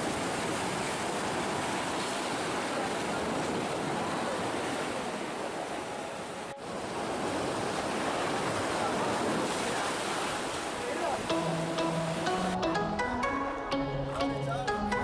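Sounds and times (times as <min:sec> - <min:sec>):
waves breaking on rocks: 0:00.0 - 0:11.2.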